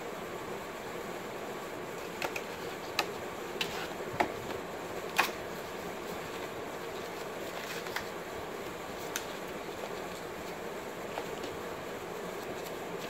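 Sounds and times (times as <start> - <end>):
room noise hum: 0.0 - 13.0.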